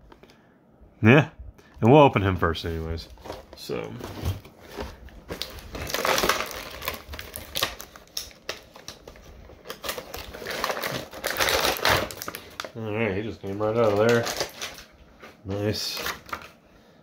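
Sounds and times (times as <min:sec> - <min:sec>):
plastic and cardboard crinkling: 0:02.6 - 0:16.6
plastic packaging clicks: 0:05.3 - 0:12.8, 0:13.4 - 0:14.9.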